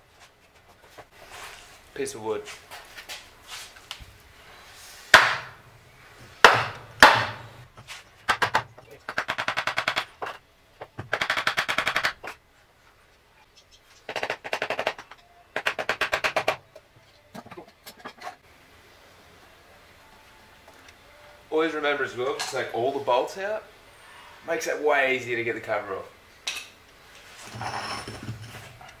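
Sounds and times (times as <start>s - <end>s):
hammer blows on wood: 6.4s - 7.6s.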